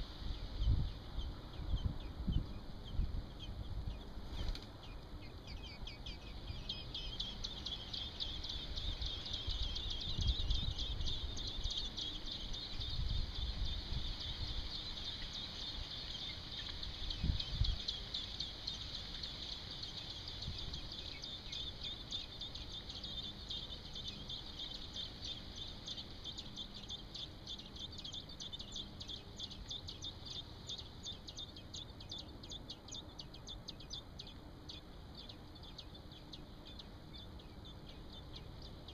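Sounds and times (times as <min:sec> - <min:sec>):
baby birds chirping: 0:00.0 - 0:38.9.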